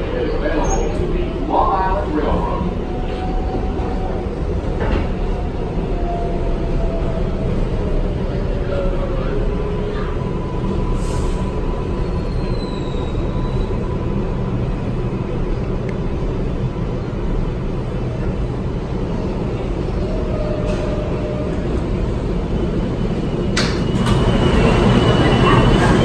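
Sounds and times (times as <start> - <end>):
subway wheels rumbling on rail: 0.0 - 26.0.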